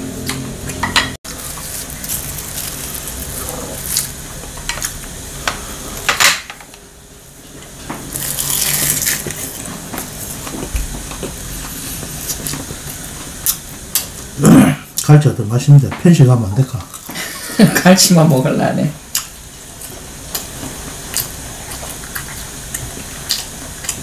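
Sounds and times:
eating noise: 0:00.3 - 0:05.0, 0:08.1 - 0:15.1.

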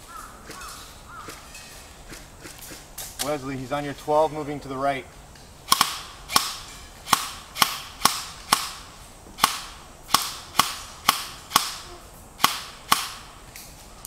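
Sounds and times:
airsoft rifle shots: 0:05.7 - 0:13.4.

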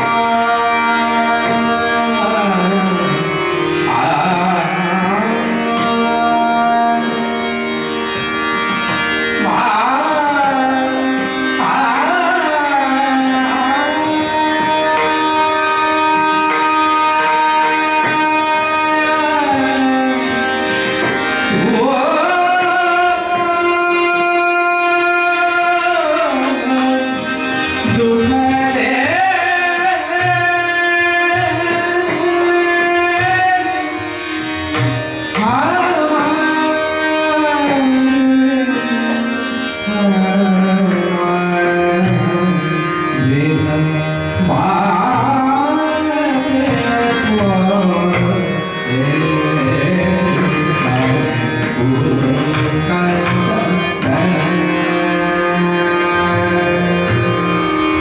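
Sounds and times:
tabla strokes: 0:49.7 - 0:54.6.

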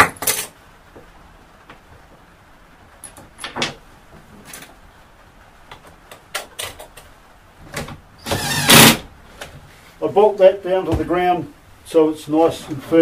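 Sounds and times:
knocks and clicks of parts handled: 0:03.0 - 0:04.8, 0:05.7 - 0:08.0.

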